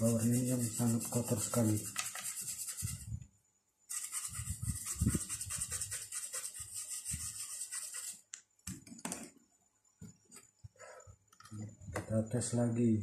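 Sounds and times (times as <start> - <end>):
brush scrubbing circuit board: 0.0 - 3.1, 3.9 - 8.2.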